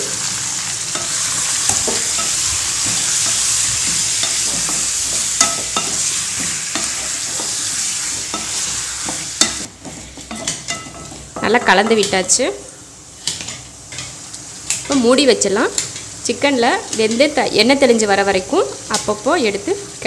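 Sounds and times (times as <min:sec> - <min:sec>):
chicken sizzling in hot oil: 0:00.0 - 0:20.0
spatula scraping and knocking pan: 0:00.9 - 0:12.4.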